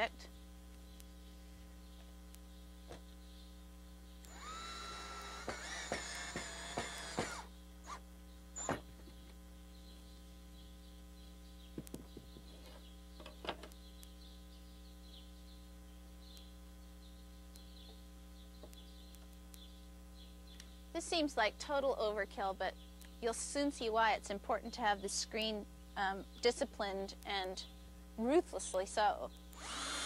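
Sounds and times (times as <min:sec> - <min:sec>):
steady low hum: 0:00.0 - 0:30.0
cordless drill motor whine: 0:04.3 - 0:08.0, 0:08.6 - 0:09.0, 0:29.6 - 0:30.0
sharp clicks and knocks: 0:11.7 - 0:13.8.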